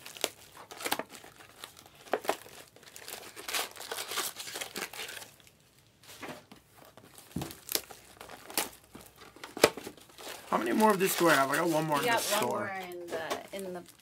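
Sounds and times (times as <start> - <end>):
foil packs crinkling: 0.0 - 5.9, 6.6 - 14.0.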